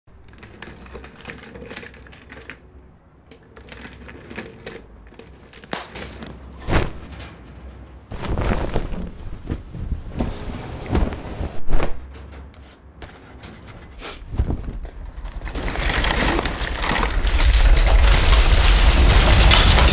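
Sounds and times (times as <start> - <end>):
rustling: 6.4 - 11.6, 12.4 - 19.9.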